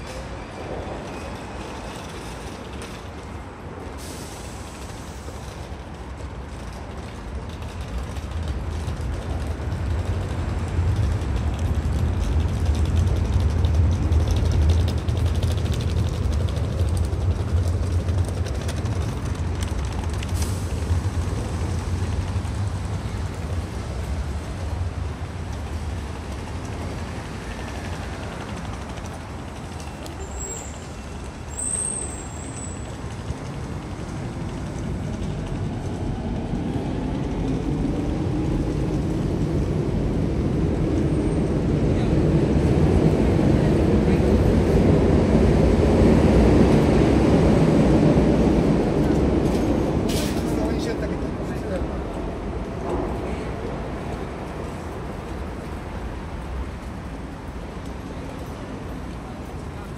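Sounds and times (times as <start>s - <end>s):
brief high squeal: 30.1s - 32.8s.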